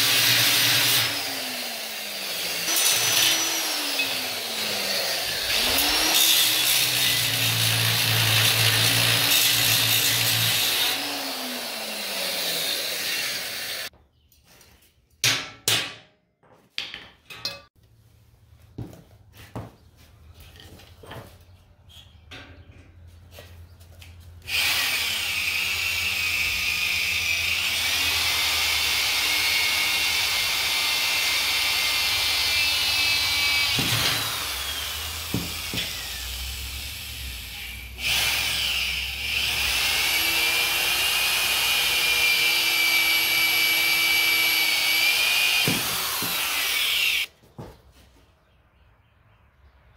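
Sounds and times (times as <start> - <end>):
angle grinder cutting steel: 0.0 - 13.9, 24.5 - 47.3
electric drill boring into steel: 0.0 - 13.9, 24.5 - 47.3.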